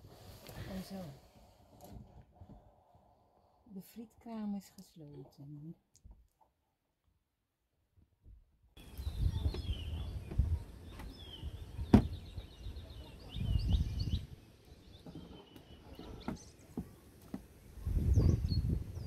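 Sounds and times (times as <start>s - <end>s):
birds chirping: 8.8s - 19.0s.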